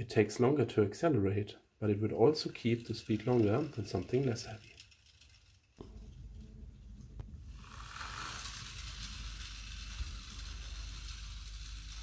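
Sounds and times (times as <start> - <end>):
toy car flywheel spinning: 2.3 - 5.8, 7.2 - 12.0.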